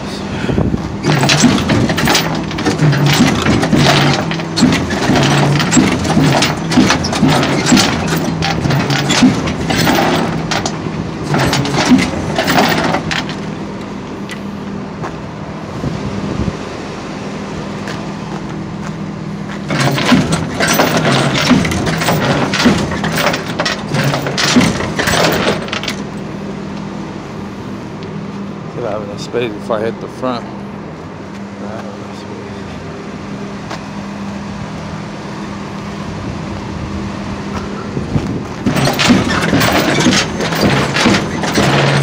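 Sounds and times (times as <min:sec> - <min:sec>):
truck engine running: 0:00.0 - 0:42.0
steel bed rattling and clanking: 0:00.8 - 0:13.7, 0:19.5 - 0:26.4, 0:37.6 - 0:42.0.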